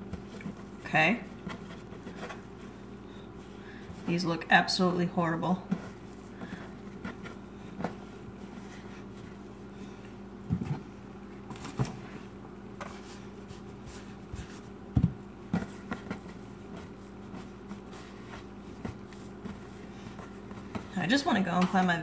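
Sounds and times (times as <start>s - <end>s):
steady low hum: 0.0s - 22.0s
dough thumping on a counter: 14.3s - 17.4s.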